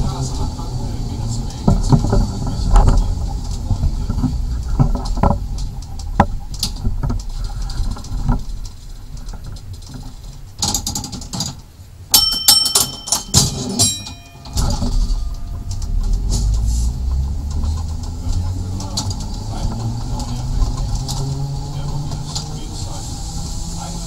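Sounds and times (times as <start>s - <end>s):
tram rumbling on track: 0.0s - 24.0s
clicks and rattles: 1.7s - 22.6s
sharp ringing metallic strikes: 12.1s - 17.4s.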